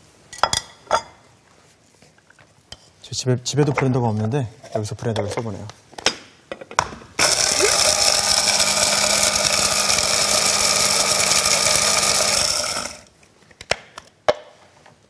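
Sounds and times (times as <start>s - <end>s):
hand blender grinding: 7.2s - 13.1s.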